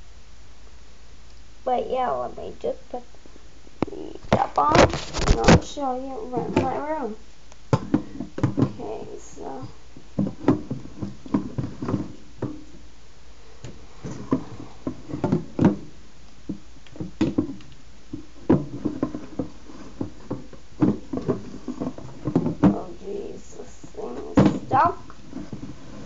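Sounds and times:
objects knocking and rubbing: 3.8 - 12.9, 13.5 - 26.0.

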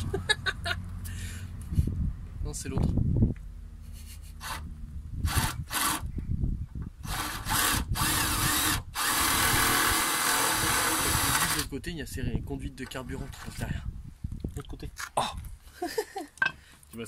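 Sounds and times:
cordless drill boring: 5.3 - 6.1, 7.0 - 11.7.

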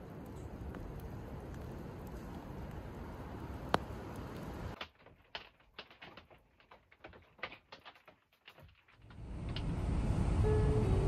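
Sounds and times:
steady hiss: 0.0 - 4.8
raindrops tapping on roof: 0.0 - 9.8.

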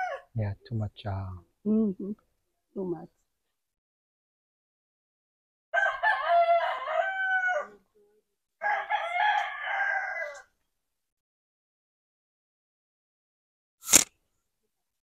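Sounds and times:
rooster crowing: 0.0 - 0.3, 5.8 - 7.8, 8.6 - 10.5.

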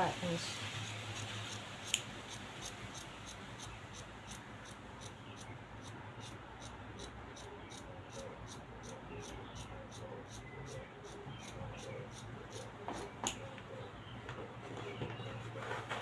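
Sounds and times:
scissors snipping fabric: 0.8 - 6.4.

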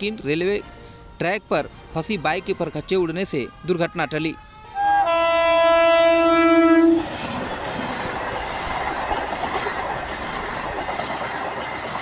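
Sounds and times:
locomotive horn: 3.4 - 7.1
train wheels on rails: 6.8 - 12.0.

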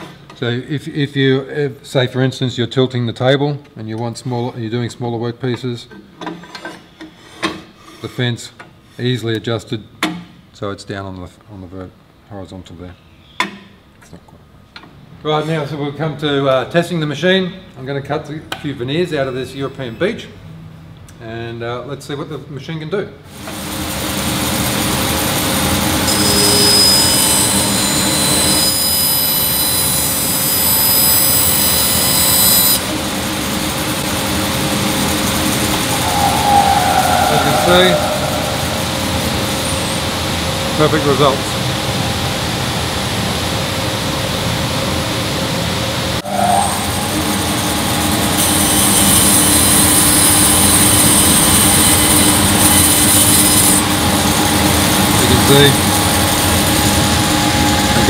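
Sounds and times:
bandsaw motor hum: 23.4 - 43.4
blade whining through wood: 24.4 - 32.9, 35.3 - 40.1.

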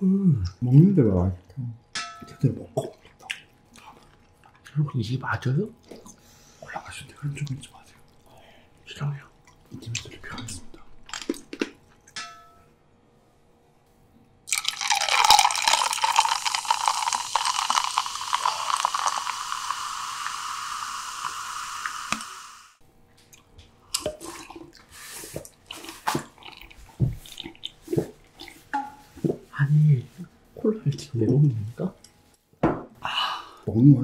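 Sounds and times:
cola pouring and fizzing: 14.5 - 22.8.

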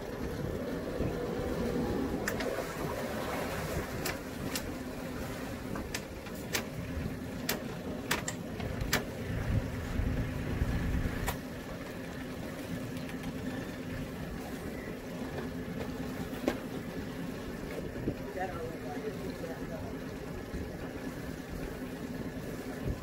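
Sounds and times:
boat engine idling: 0.0 - 23.0
sharp knocks and clicks: 7.4 - 9.1.

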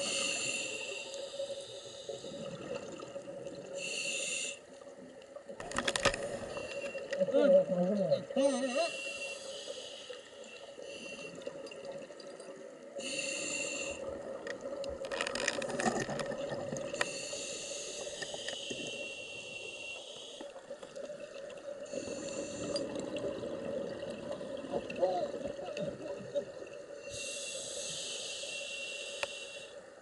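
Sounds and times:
regulator hissing inhalations: 0.0 - 2.5, 3.7 - 4.8, 8.8 - 11.5, 13.0 - 14.2, 16.9 - 20.8, 21.8 - 23.0, 27.0 - 29.9.

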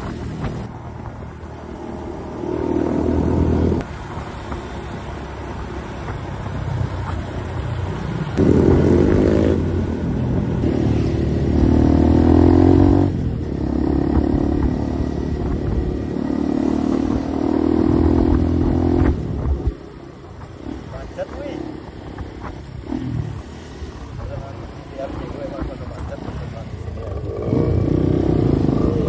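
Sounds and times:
motorcycle engine accelerating: 8.4 - 19.8, 25.3 - 29.0.

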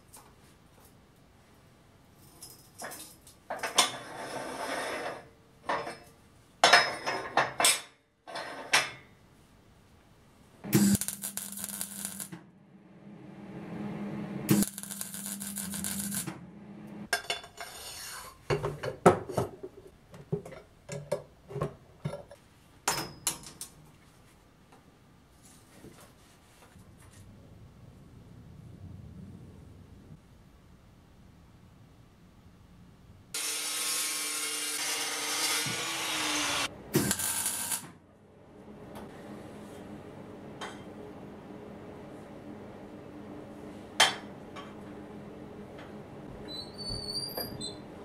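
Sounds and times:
welder humming: 10.6 - 17.1, 33.4 - 37.9
welding crackle: 10.7 - 12.4, 14.5 - 16.3, 33.4 - 38.0.

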